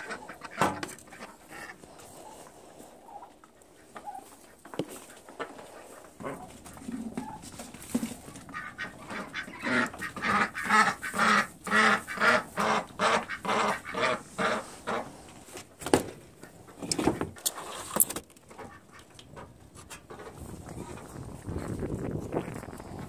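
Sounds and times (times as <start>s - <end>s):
ducks quacking: 0.0s - 15.5s.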